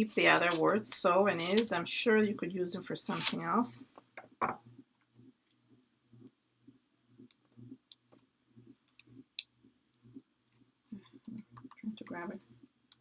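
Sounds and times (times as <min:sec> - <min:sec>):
paper rustling: 0:03.1 - 0:03.4.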